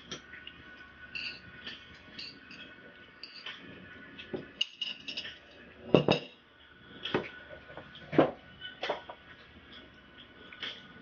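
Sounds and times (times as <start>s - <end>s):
chopsticks clicking on plates: 1.1s - 3.6s
dishes clattering: 1.1s - 6.4s, 7.1s - 9.2s.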